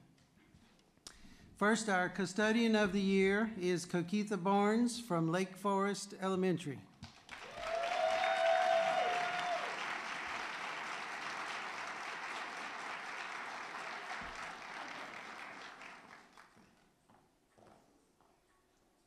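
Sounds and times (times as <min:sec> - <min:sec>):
audience applauding: 0:07.2 - 0:16.7
high cheer: 0:07.4 - 0:16.0.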